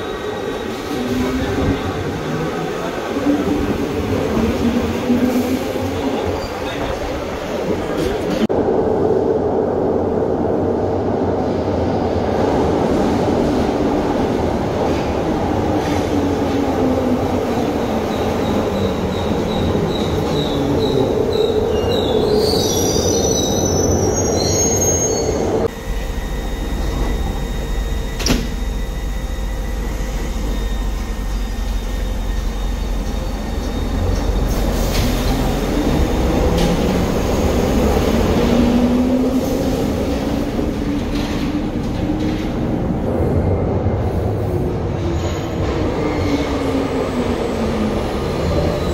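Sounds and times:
train wheels squealing: 0.0 - 2.0, 17.8 - 35.3
train motor whine: 25.7 - 34.4.

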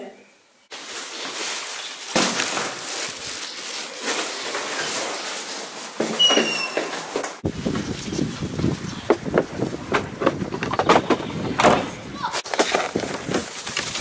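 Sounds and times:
brief high squeak: 6.2 - 6.9.

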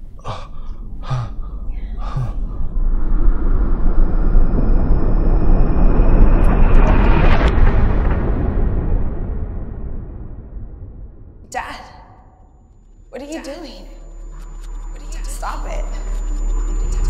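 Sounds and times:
deep cinematic rumble: 0.0 - 17.0
person coughing: 0.2 - 1.4, 2.0 - 2.4.

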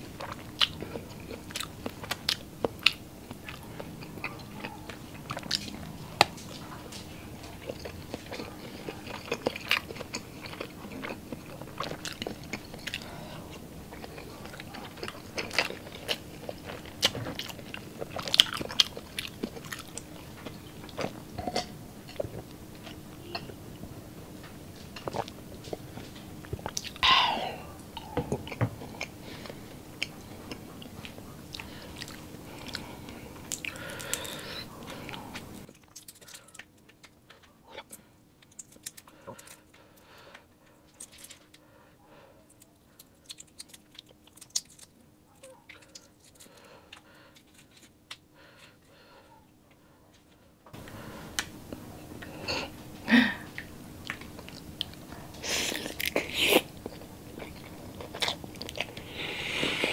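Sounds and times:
close chewing and wet mouth sounds: 0.0 - 49.9, 53.5 - 59.9
lip smacks and clicks: 42.5 - 48.2.

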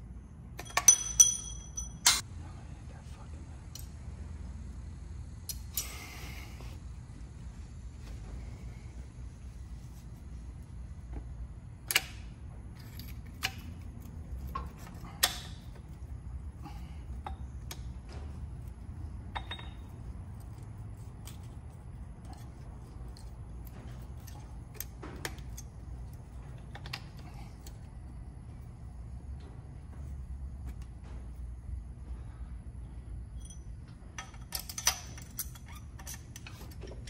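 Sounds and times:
low steady hum: 0.0 - 37.0.

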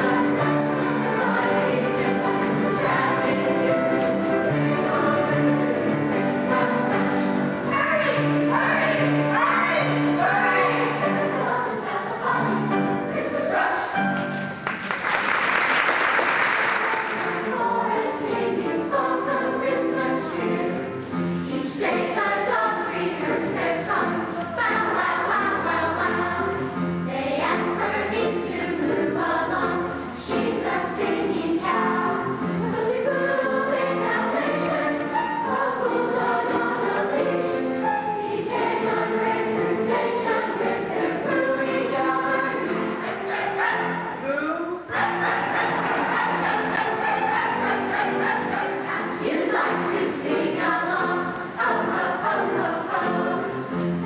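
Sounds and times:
choir singing: 0.0 - 54.0
people clapping: 14.6 - 17.5.

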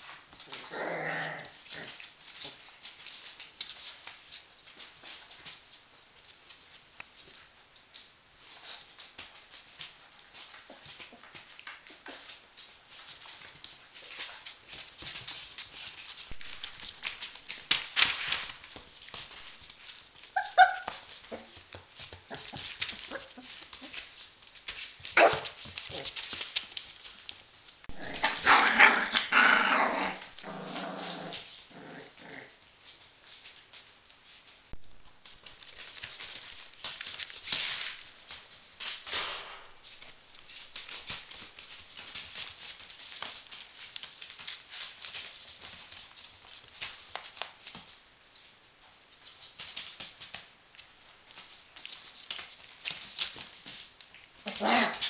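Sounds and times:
crackly rustle of newspaper: 0.0 - 55.0
puppy vocalizing: 20.3 - 21.6, 22.2 - 24.1, 27.9 - 32.6, 54.4 - 55.0.

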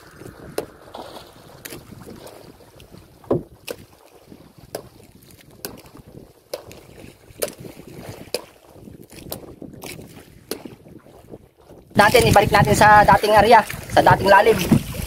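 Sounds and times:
wind and sea wash: 0.0 - 15.0
fishing gear knocking on boat: 3.2 - 3.8.

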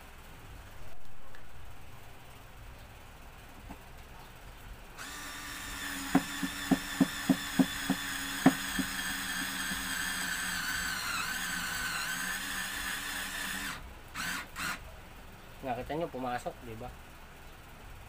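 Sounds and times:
screwdriver motor whirring: 5.0 - 14.8.

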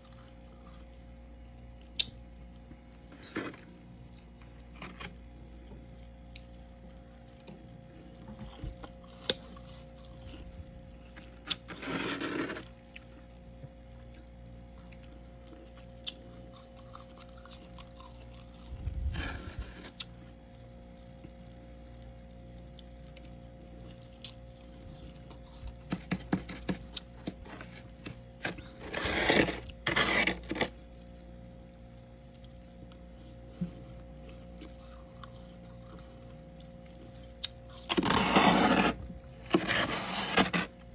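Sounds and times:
steady low hum: 0.0 - 40.9
metal spoon scraping frost: 11.5 - 12.7, 25.9 - 30.7, 37.9 - 40.8.

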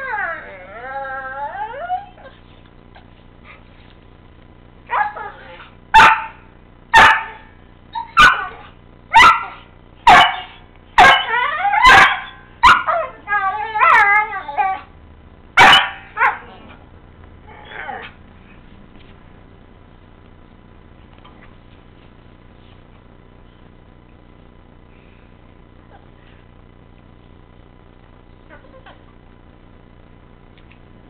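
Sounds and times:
dog howl-like whines: 0.0 - 2.4, 12.9 - 14.9
dogs play-barking and yipping: 4.9 - 6.3, 7.0 - 14.9, 15.6 - 16.8, 17.5 - 18.2
dog yelping barks: 4.9 - 6.4, 7.0 - 14.8, 15.6 - 16.6.

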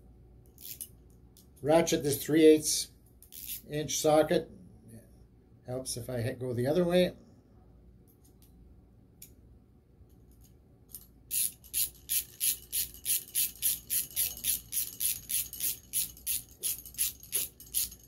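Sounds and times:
hand ratchet clicking: 0.6 - 0.9, 3.2 - 3.6, 10.9 - 18.0.

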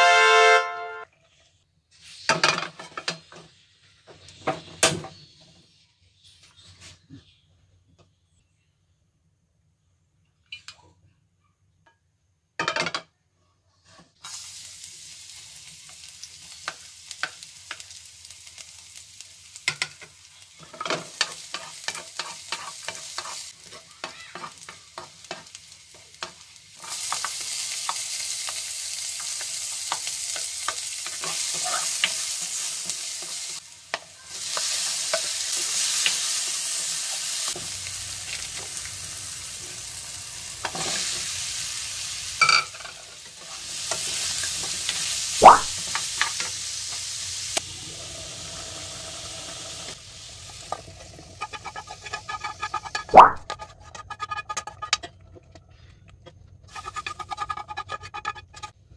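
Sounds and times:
spatula scraping a pan: 1.3 - 3.8, 19.6 - 37.6, 40.6 - 41.4, 50.4 - 58.8
garlic sizzling in hot oil: 14.2 - 55.0, 56.6 - 58.8.

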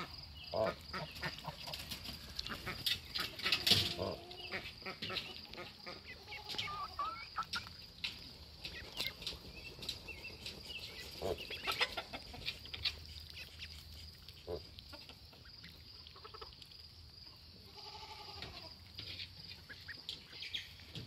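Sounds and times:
ducks quacking: 0.0 - 7.7, 10.9 - 13.7
ducklings peeping: 0.0 - 16.8, 19.0 - 21.0.

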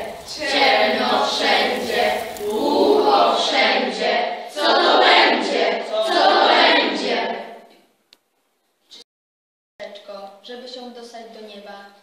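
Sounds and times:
girls chanting in unison: 0.0 - 7.7.

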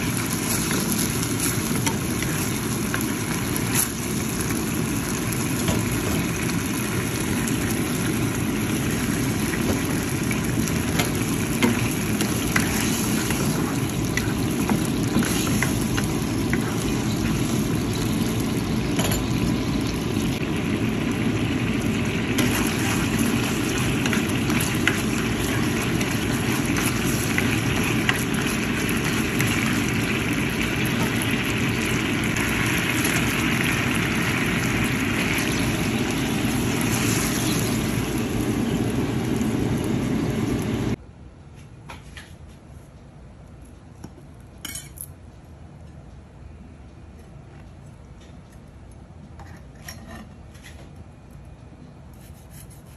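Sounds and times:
sauce bubbling in a frying pan: 0.0 - 41.0.

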